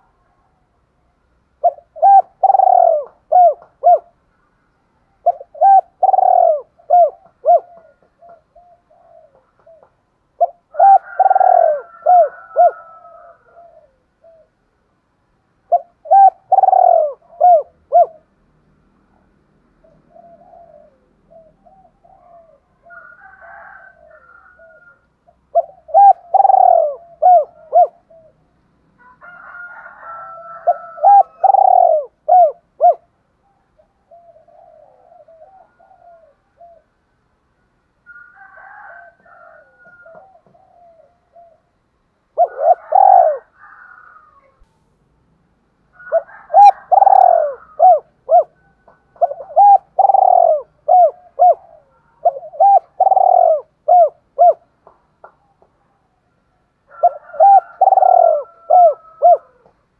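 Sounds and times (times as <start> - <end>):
dove cooing: 1.5 - 4.2, 5.2 - 14.7, 15.7 - 18.4, 19.2 - 37.0, 38.1 - 44.6, 45.9 - 56.1, 56.9 - 59.8.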